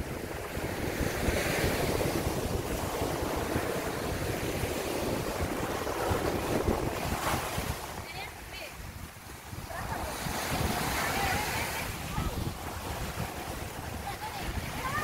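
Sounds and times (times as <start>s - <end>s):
waves washing up beach: 0.0s - 15.0s
wind buffeting microphone: 0.0s - 15.0s.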